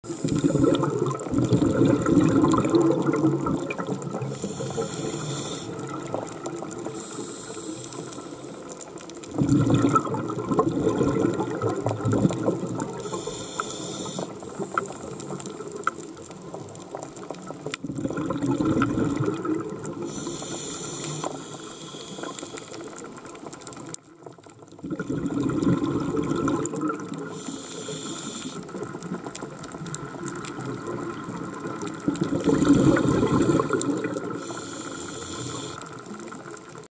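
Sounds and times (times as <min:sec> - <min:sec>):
regulator inhale hiss: 0:00.0 - 0:00.9, 0:04.2 - 0:06.1, 0:06.7 - 0:08.9, 0:13.0 - 0:15.7, 0:20.0 - 0:23.2, 0:27.2 - 0:28.8, 0:32.7 - 0:36.0
exhaled bubbles gurgling: 0:00.0 - 0:36.9
faint clicks: 0:04.2 - 0:09.3, 0:11.6 - 0:17.8, 0:19.6 - 0:24.8, 0:26.5 - 0:36.9.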